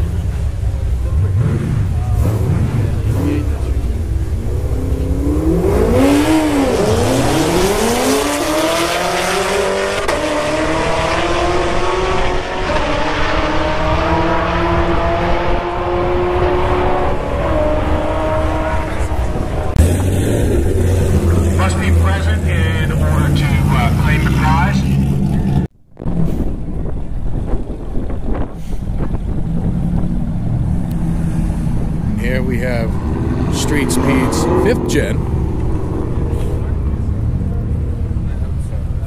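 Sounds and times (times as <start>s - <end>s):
drag race car engine revving: 0.0s - 25.7s, 29.3s - 38.8s.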